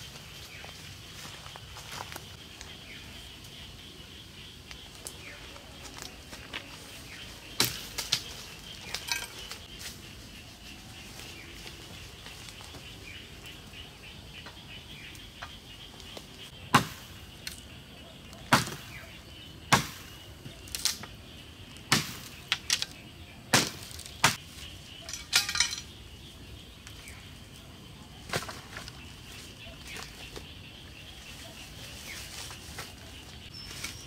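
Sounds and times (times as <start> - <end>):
chopping wood: 16.7 - 17.1, 18.5 - 19.0, 19.7 - 20.0, 21.9 - 22.9, 23.5 - 24.4.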